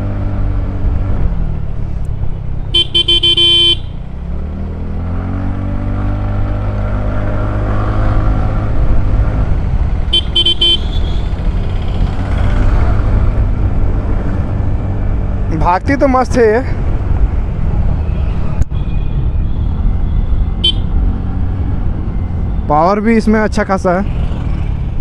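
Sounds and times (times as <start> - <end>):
vehicle horn: 2.7 - 4.0, 10.1 - 11.4, 18.8 - 21.0
scooter engine accelerating: 2.7 - 14.8.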